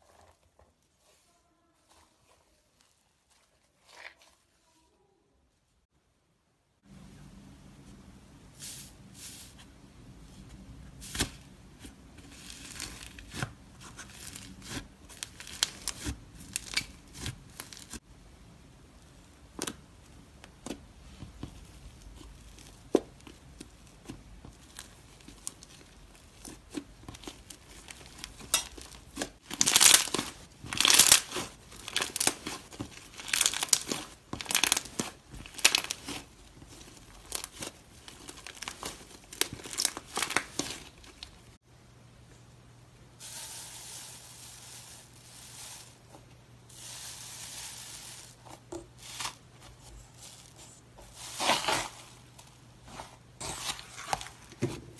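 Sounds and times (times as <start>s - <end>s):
slime crust crackling: 21.5s - 41.6s, 43.6s - 54.5s.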